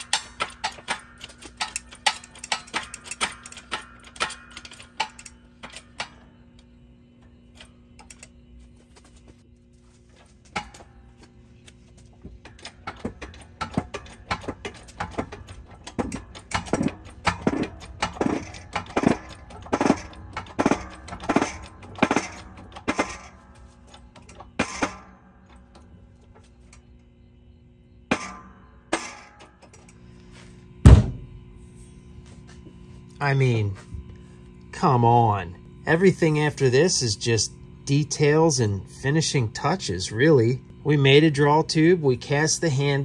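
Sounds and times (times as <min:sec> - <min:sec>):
metal creaking in a press: 0:10.5 - 0:26.9.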